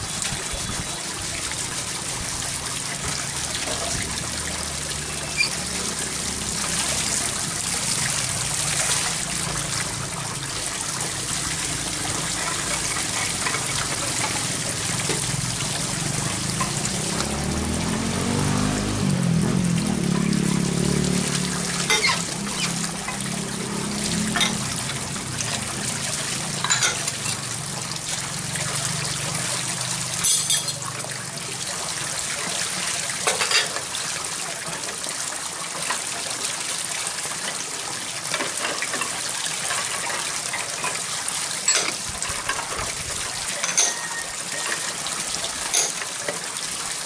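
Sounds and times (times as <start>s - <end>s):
water splashing and trickling: 0.0s - 47.0s
bowls and pots clinking: 12.4s - 15.4s, 21.8s - 23.4s, 24.1s - 25.0s, 26.5s - 27.4s, 30.2s - 30.8s, 33.2s - 33.8s, 41.7s - 42.7s, 43.6s - 45.0s, 45.6s - 46.1s.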